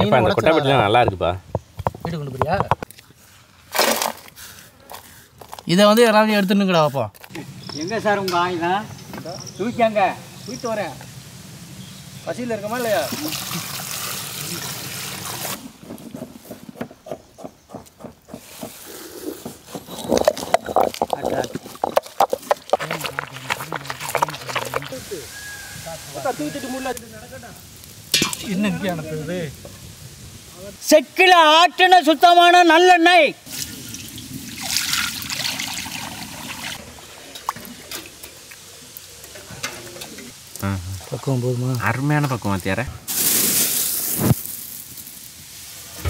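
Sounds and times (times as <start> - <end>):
oil pouring into a pan: 12.8 - 15.6, 33.5 - 37.9
stone pestle crushing in mortar: 15.6 - 25.0.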